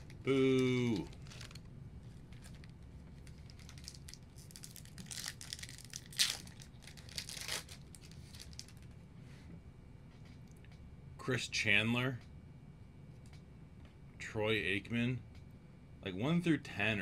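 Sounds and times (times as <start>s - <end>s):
foil wrapper crinkling and tearing: 0.8s - 1.7s, 2.3s - 8.8s.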